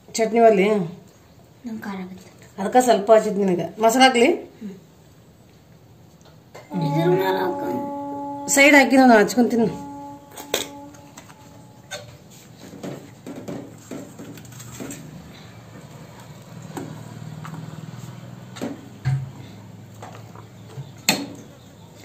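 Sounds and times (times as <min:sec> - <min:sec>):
faint low hum: 0:06.7 - 0:12.2.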